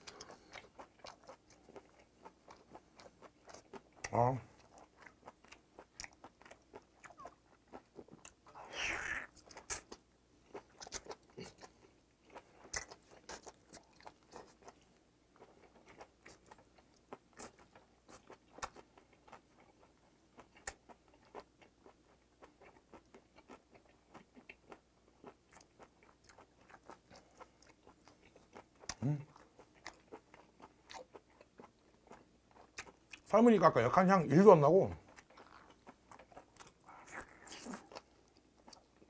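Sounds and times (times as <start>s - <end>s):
mouth chewing wet clicks: 0.0s - 8.4s, 9.0s - 33.3s, 35.0s - 39.0s
bite and suck noise: 36.6s - 38.0s.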